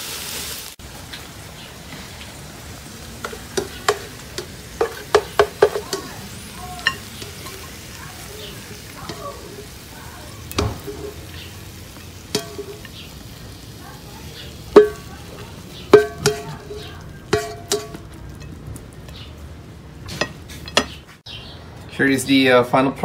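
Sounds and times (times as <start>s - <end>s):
faint sizzle: 0.0s - 21.2s
spatula knocking on frying pan: 3.2s - 6.2s, 10.5s - 11.3s, 12.0s - 12.9s, 14.7s - 15.2s, 15.9s - 18.5s.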